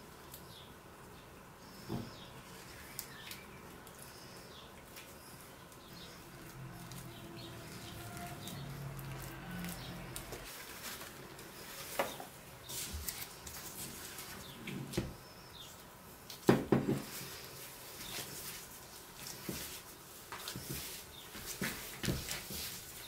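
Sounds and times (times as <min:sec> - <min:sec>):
hands kneading dough: 0:01.6 - 0:23.0
soft knocks and rustles: 0:18.0 - 0:23.0.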